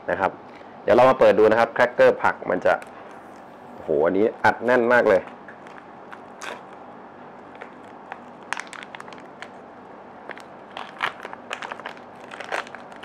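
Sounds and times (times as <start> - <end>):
plastic pouch crinkling: 5.6 - 6.8, 7.4 - 13.0.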